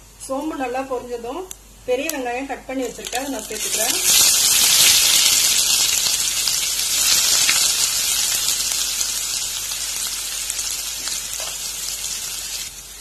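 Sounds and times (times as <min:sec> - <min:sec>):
onions sizzling in hot oil: 0:02.7 - 0:13.0.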